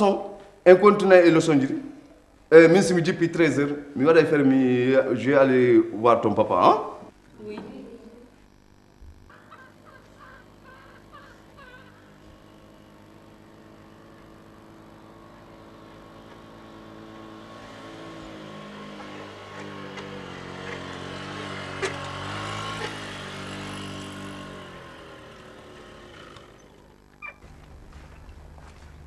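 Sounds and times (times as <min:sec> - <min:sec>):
vehicle engine passing by: 0:16.8 - 0:26.5.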